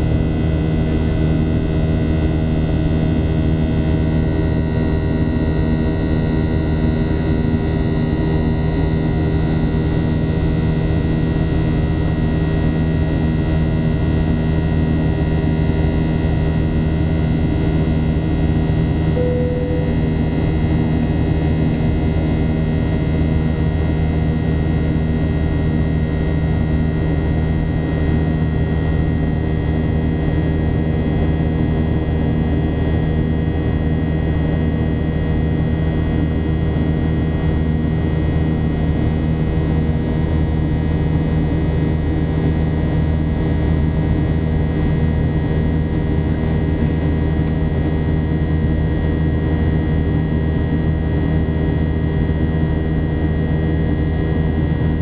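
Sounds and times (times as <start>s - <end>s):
jet engine and airflow drone: 0.0s - 20.4s.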